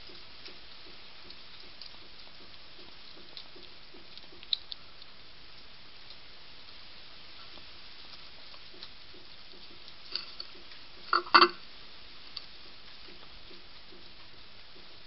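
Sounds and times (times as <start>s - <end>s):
faint steady hiss: 0.0s - 15.0s
pellets clattering on plate: 11.1s - 11.6s.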